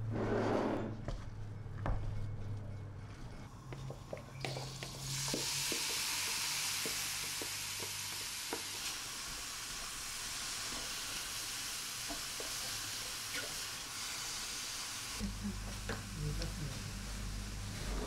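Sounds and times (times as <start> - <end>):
food sizzling in frying pan: 4.4 - 18.0.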